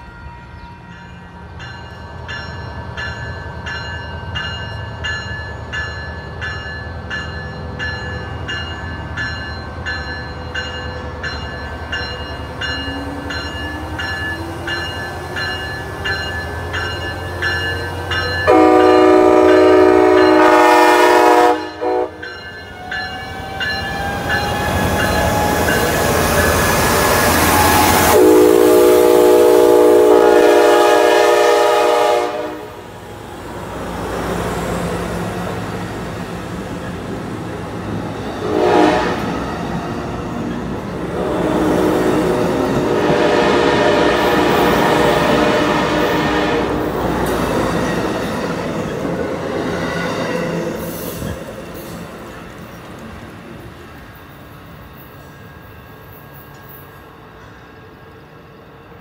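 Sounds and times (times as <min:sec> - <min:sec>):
locomotive bell ringing: 0:00.0 - 0:28.5
train horn blasts: 0:18.4 - 0:22.4, 0:27.5 - 0:32.9, 0:38.4 - 0:39.4, 0:42.7 - 0:47.0.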